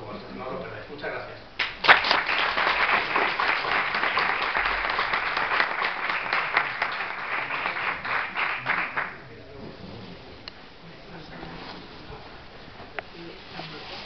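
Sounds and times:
audience applauding: 1.6 - 9.3.

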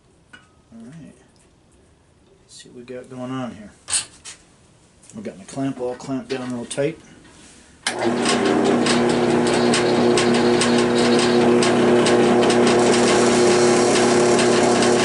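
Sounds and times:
drill press motor humming: 7.9 - 15.0.

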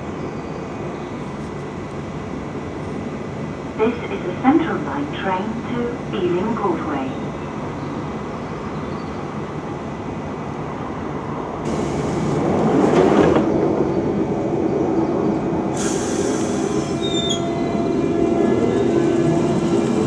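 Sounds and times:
train door hiss: 11.7 - 12.5, 15.7 - 17.5
sharp air hiss: 15.7 - 17.4
faint wheel squeals: 16.8 - 17.6.

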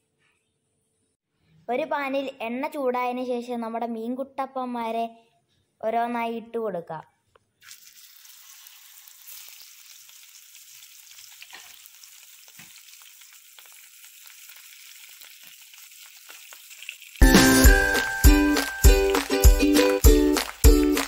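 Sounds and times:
fish sizzling in hot oil: 7.6 - 19.2
loud music: 17.2 - 21.0.

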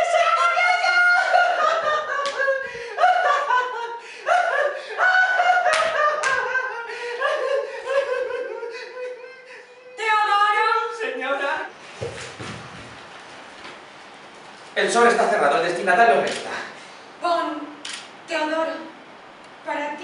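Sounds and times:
sharp claps or slaps: 5.7 - 6.4.

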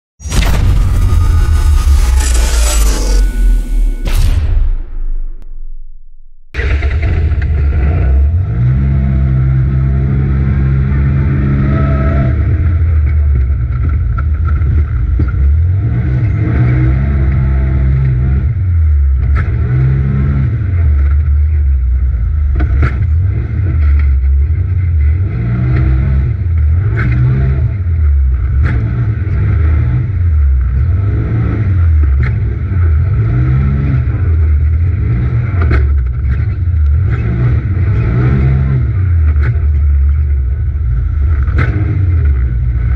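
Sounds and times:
turbocharged engine revving: 6.5 - 12.9.

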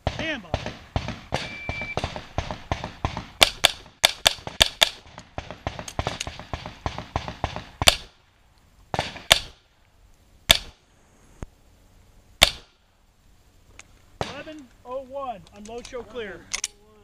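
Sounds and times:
pistol shots: 0.0 - 8.2, 8.9 - 9.6, 10.5 - 10.8, 12.4 - 12.8, 14.2 - 14.6.

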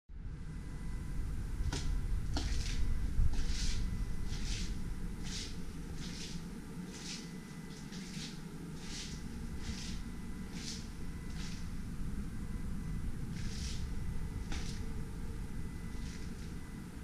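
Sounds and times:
footsteps on tiled floor: 1.7 - 6.4.

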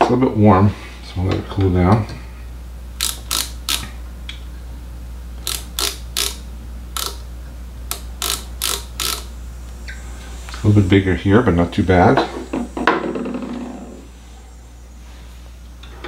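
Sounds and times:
micrometer ratchet clicking: 3.0 - 3.9, 5.4 - 7.2, 7.9 - 9.3.

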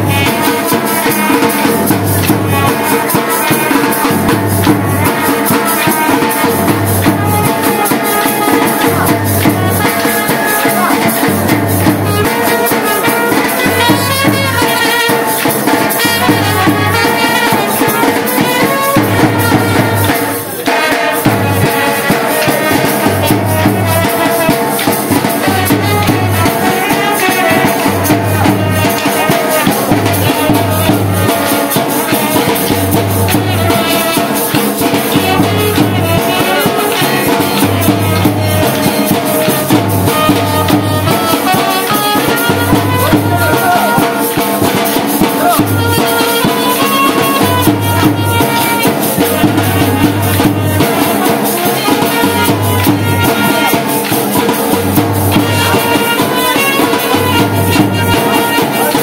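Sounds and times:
rattling jingling percussion: 0.0 - 59.0.

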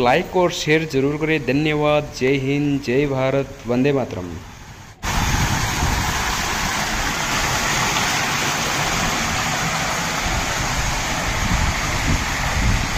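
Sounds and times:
fountain water splashing: 4.4 - 12.9.

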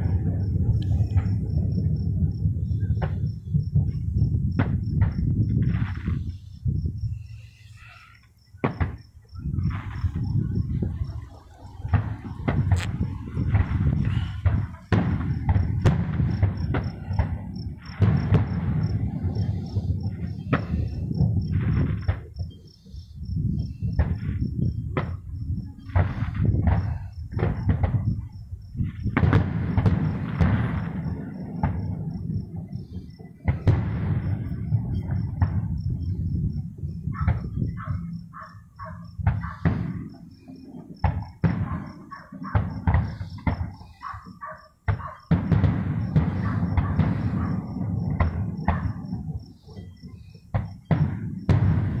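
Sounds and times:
fireworks bangs and cracks: 0.0 - 7.7, 8.4 - 38.5, 39.1 - 52.0
cricket chirping: 0.0 - 52.0.

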